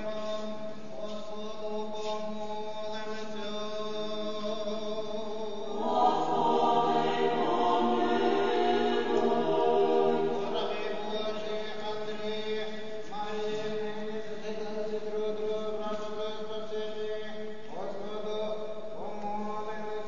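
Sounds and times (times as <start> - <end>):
choir chanting: 5.5 - 11.6.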